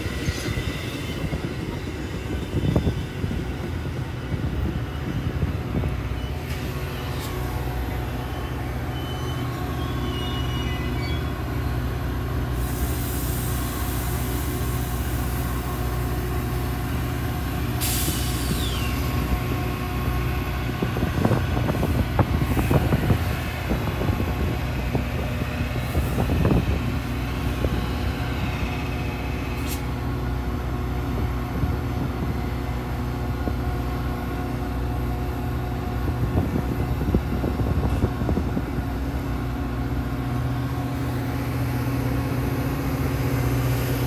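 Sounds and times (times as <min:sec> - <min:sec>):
diesel locomotive engine running: 0:00.0 - 0:44.0
air hiss: 0:12.6 - 0:15.4, 0:17.8 - 0:19.0.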